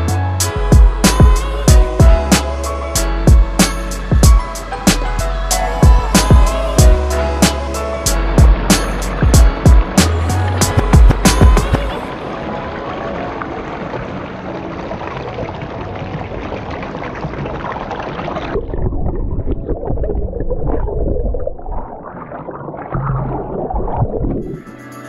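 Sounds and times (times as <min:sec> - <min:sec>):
creek water rushing over rocks: 0:05.5 - 0:18.7
muffled underwater gurgling: 0:10.9 - 0:24.6.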